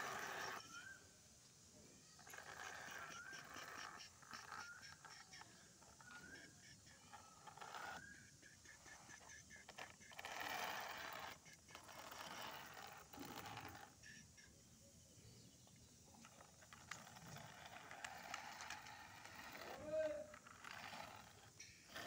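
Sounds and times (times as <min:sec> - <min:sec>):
toy scraping through sand: 0:00.0 - 0:01.0, 0:02.1 - 0:14.5, 0:16.1 - 0:22.0.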